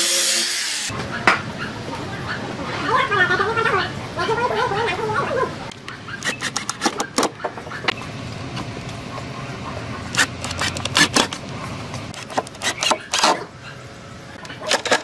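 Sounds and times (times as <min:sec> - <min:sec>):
cordless driver clicking and knocking: 0:06.2 - 0:07.3, 0:10.2 - 0:11.4.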